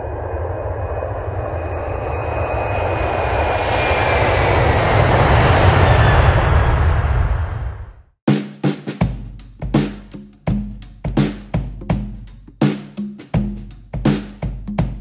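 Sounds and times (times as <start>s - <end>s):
high whine falling in pitch: 0.0s - 8.0s
jet airliner flying by: 0.0s - 8.1s.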